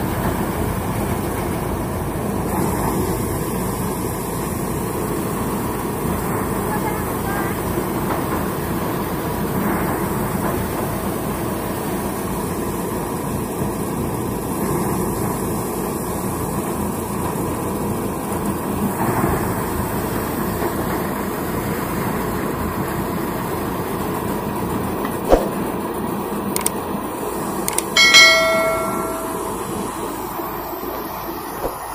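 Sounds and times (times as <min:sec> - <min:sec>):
tractor engine: 0:00.0 - 0:31.9
sharp click: 0:26.6 - 0:26.8, 0:27.7 - 0:28.0
short bell-like chime: 0:28.0 - 0:30.1
threshing drum drone: 0:28.0 - 0:30.4.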